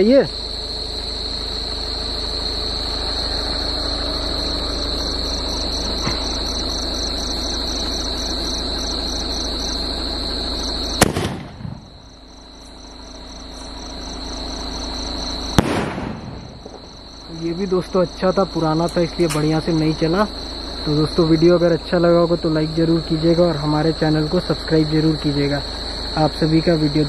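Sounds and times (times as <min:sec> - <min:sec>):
constant hiss: 0:00.0 - 0:27.0
crickets trilling: 0:00.0 - 0:27.0
firework cracks: 0:11.0 - 0:11.9, 0:15.5 - 0:16.9.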